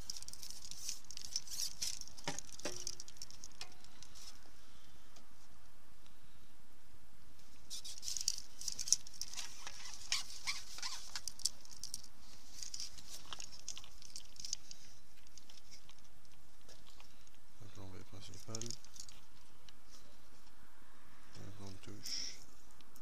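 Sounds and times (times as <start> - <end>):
hands rustling fishing tackle: 0.0 - 4.4, 7.6 - 17.4, 18.2 - 20.6.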